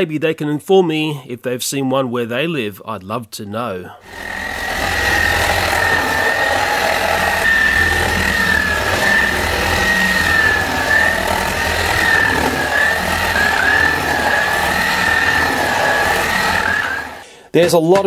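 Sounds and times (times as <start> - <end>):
low hum: 4.0 - 17.2
toy car motor whining: 4.0 - 17.2.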